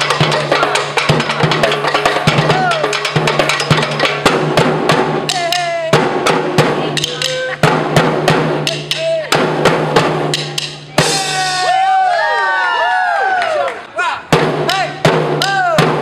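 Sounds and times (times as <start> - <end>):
drumsticks beating junk percussion: 0.0 - 11.7, 14.6 - 16.0
players shouting: 2.4 - 3.0, 11.0 - 15.7.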